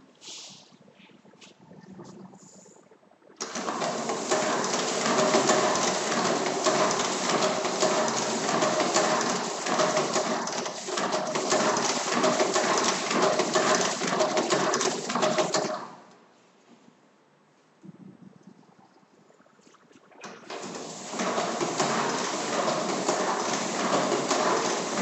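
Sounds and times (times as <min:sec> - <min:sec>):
stencil duplicator clattering: 0:03.4 - 0:15.8, 0:20.5 - 0:25.0.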